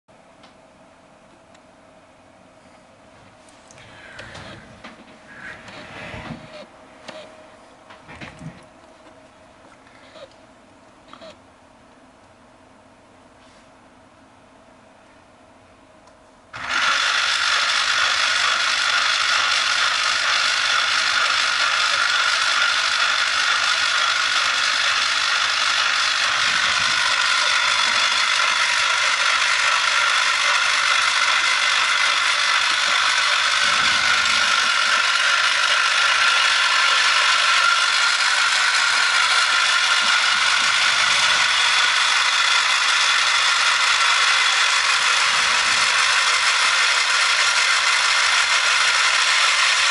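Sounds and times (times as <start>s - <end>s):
small electric motor whirring: 3.8s - 7.3s, 16.6s - 49.9s.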